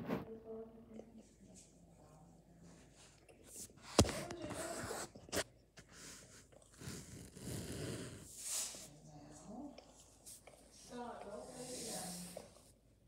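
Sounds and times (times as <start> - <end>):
hand rubbing dog fur: 8.3 - 9.0.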